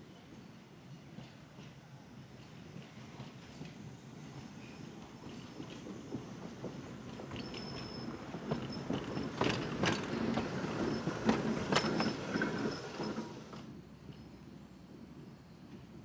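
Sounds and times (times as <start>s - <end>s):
electric railcar rolling past: 0.0s - 16.0s
wheels clicking over rail joints: 4.9s - 14.3s.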